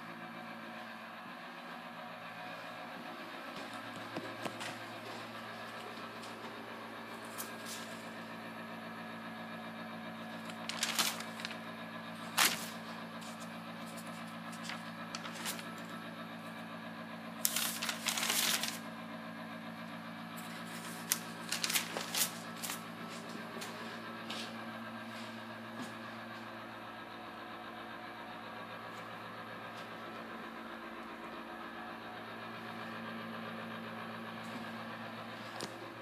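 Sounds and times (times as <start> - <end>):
steady low hum: 0.0 - 36.0
rustling: 10.5 - 11.6, 12.2 - 15.7, 17.4 - 18.8.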